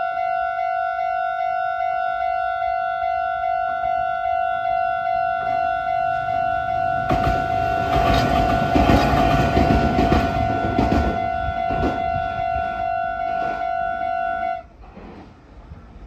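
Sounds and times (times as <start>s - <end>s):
level crossing warning bell: 0.0s - 14.7s
train rumbling: 4.7s - 16.0s
wheels clacking over rail joints: 6.6s - 14.1s.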